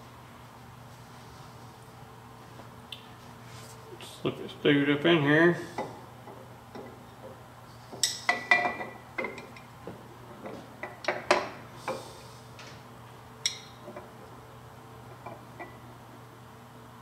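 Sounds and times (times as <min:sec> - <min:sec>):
metal clinks and taps: 0:08.0 - 0:09.7, 0:13.4 - 0:13.8.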